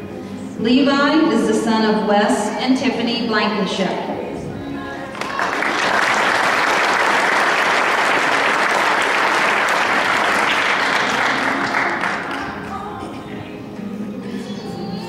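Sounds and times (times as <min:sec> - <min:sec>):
audience applauding: 0:05.1 - 0:12.6.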